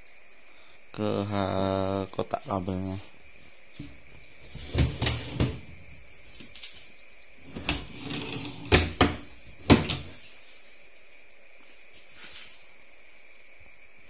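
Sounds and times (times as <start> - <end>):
flight case knocks and thumps: 3.8 - 5.9, 8.5 - 10.2.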